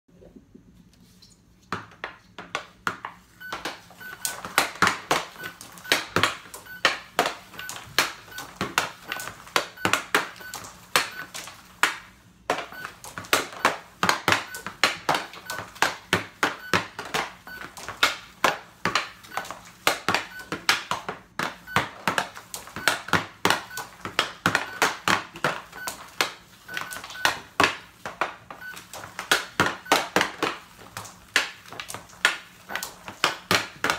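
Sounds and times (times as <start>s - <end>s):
hockey stick and puck clacking: 1.8s - 33.9s
short electronic beeps: 3.4s - 4.5s, 5.3s - 11.4s, 12.7s - 14.8s, 15.4s - 15.7s, 16.5s - 16.9s, 17.5s - 17.7s, 19.3s - 19.5s, 20.3s - 20.5s, 21.6s - 21.9s, 22.8s - 23.9s, 24.6s - 24.9s, 26.7s - 27.4s, 28.6s - 28.8s.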